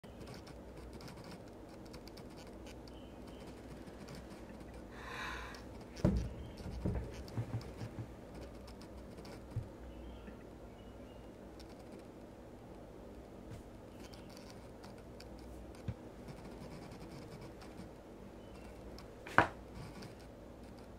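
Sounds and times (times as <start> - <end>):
heavy dull knocks: 6.0 - 8.2.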